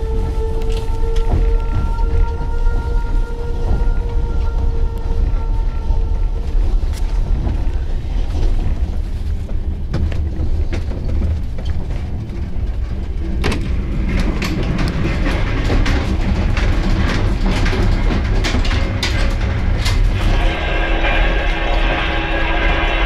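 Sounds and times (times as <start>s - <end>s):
train rumble: 0.0s - 23.0s.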